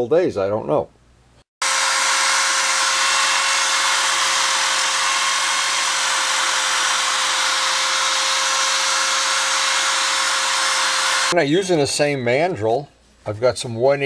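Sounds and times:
abrasive pad scrubbing metal: 0:01.6 - 0:11.4
electric drill whining: 0:01.6 - 0:11.4.

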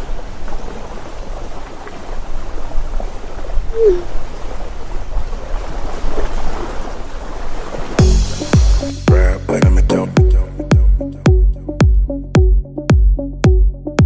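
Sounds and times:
short sliding tone: 0:03.8 - 0:04.1.

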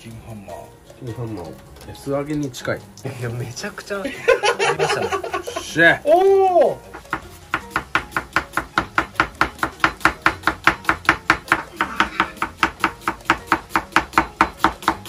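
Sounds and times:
knife chopping on cutting board: 0:07.0 - 0:15.0.

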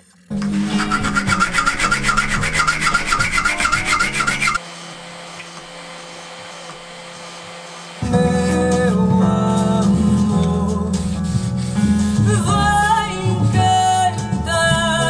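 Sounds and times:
electric sander humming: 0:00.4 - 0:09.2
sandpaper rubbing on wood: 0:00.5 - 0:04.6, 0:05.9 - 0:09.1, 0:10.7 - 0:13.7.

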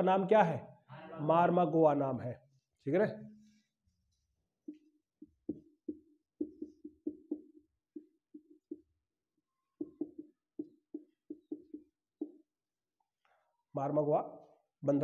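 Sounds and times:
marker tapping on whiteboard: 0:04.7 - 0:08.9, 0:09.8 - 0:12.5.

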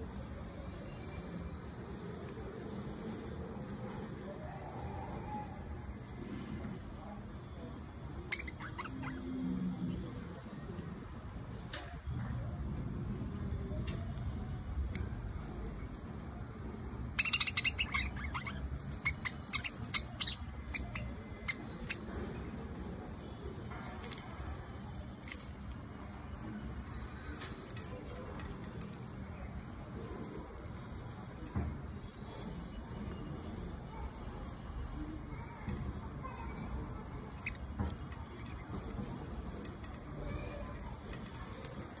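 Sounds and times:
birds clicking and tapping: 0:00.2 - 0:42.0
budgerigars chirping: 0:17.2 - 0:21.1.

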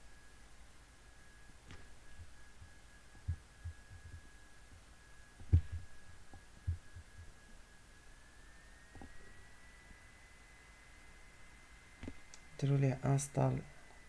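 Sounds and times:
faint high-pitched whine: 0:00.0 - 0:14.0
faint low muffled thumps: 0:01.6 - 0:07.4.

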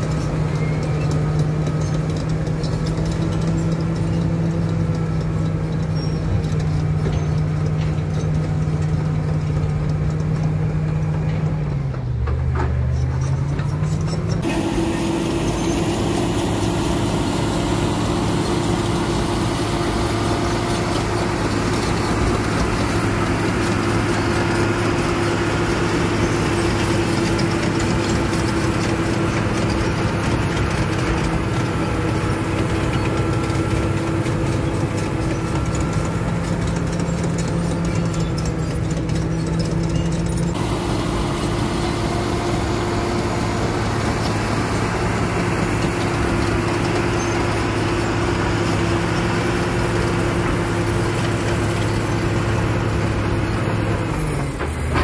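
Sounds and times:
bulldozer diesel engine running: 0:00.0 - 0:55.0.

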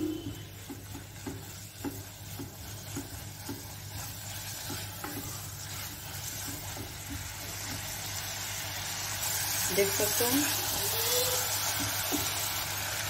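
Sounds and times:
meat sizzling in a pot: 0:00.0 - 0:13.0
spatula scraping a pot: 0:00.1 - 0:08.2.

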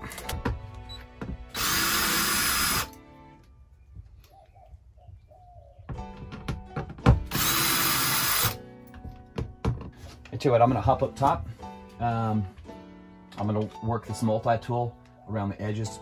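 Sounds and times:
cordless drill running: 0:01.5 - 0:02.9, 0:07.3 - 0:08.6.

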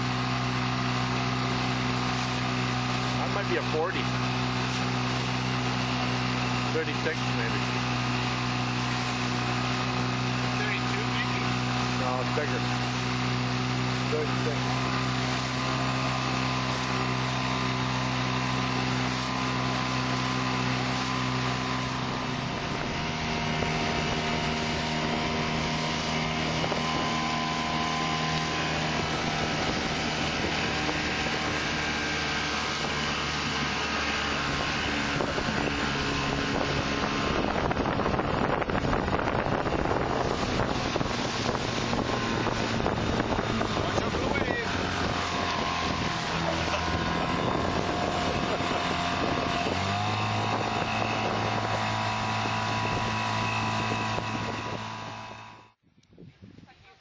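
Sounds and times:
water rushing past: 0:00.0 - 0:55.5
small outboard motor: 0:00.0 - 0:55.8
wind on microphone: 0:14.6 - 0:57.0.

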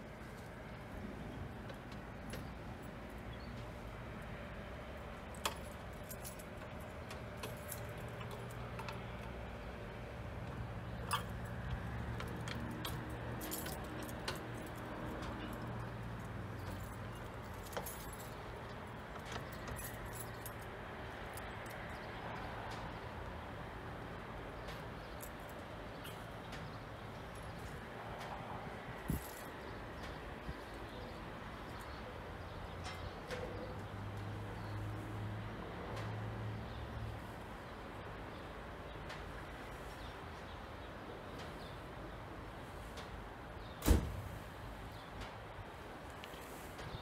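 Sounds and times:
diesel locomotive engine hum: 0:00.0 - 0:29.2
metallic clicks from wheels: 0:01.6 - 0:23.4.

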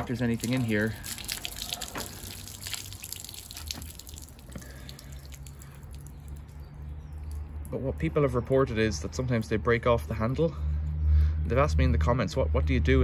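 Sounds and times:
water splashing onto ground: 0:00.0 - 0:08.7
water dripping: 0:00.0 - 0:09.6.

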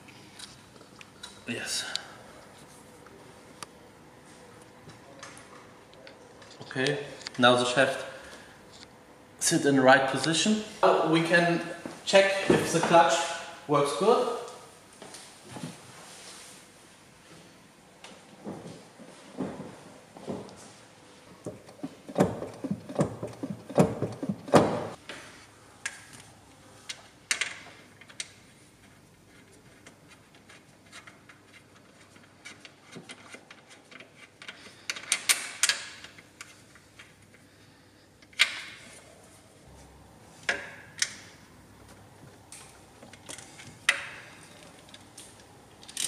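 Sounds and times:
tools and parts clicking: 0:32.4 - 0:37.1, 0:42.5 - 0:46.0.

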